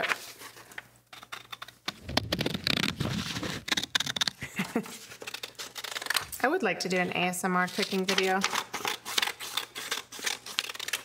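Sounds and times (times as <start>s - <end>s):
paper rustling: 0.0s - 6.3s
scissors snipping paper: 1.1s - 6.3s, 7.6s - 11.0s.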